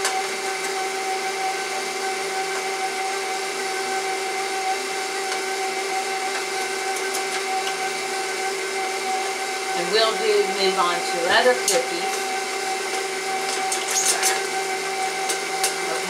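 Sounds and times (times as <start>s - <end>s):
stand mixer motor humming: 0.0s - 16.0s.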